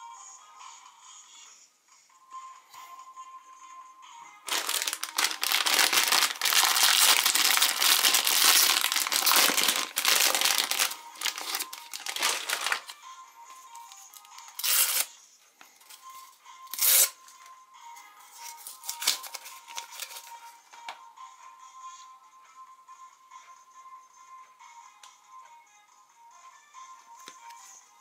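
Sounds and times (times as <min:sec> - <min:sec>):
faint background music: 0:00.0 - 0:28.0
paper wrapper crinkling: 0:04.5 - 0:13.0, 0:14.1 - 0:15.1, 0:18.4 - 0:20.4
plastic wrapper crinkling and tearing: 0:04.5 - 0:13.0, 0:14.1 - 0:15.1, 0:16.7 - 0:17.1, 0:18.4 - 0:20.4.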